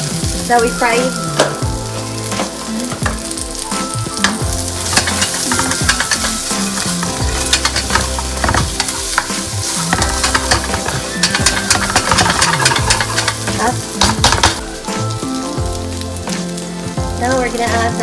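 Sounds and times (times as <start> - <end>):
potatoes sizzling in frying pan: 0.0 - 18.0
spatula scraping and tapping pan: 4.2 - 14.6.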